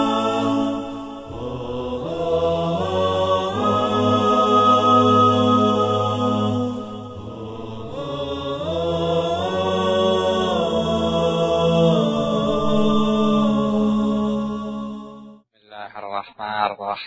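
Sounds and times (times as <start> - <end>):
layered voices singing a cappella: 0.0 - 15.4.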